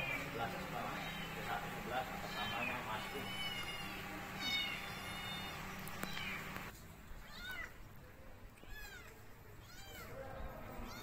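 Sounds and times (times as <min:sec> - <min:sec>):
high-pitched animal calls: 0:00.0 - 0:06.6.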